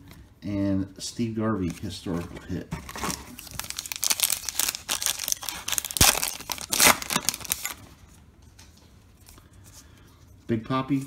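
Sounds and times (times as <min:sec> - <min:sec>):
wrapper tearing and crinkling: 0:02.8 - 0:07.9.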